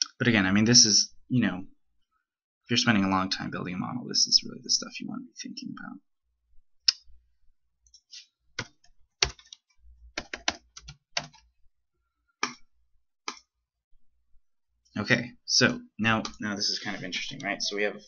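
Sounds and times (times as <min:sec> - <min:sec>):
mouse clicks: 0:12.4 - 0:12.7.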